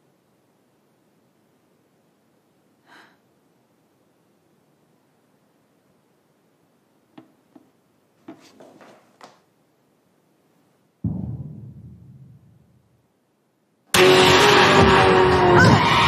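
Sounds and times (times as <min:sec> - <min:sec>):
deep booming impact: 0:11.0 - 0:12.9.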